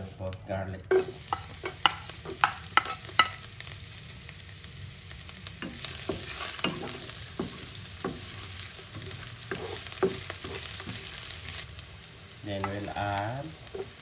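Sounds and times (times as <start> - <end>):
garlic sizzling in oil: 0.0 - 14.0
spatula knocking and scraping: 1.3 - 3.4, 5.6 - 11.1, 13.7 - 14.0.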